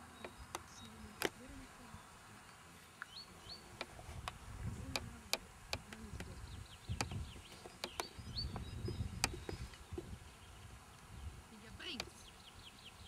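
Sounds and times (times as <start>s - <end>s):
low uneven rumble: 0.0s - 13.0s
small birds chirping: 0.0s - 13.0s
sharp clicks: 7.0s - 8.6s.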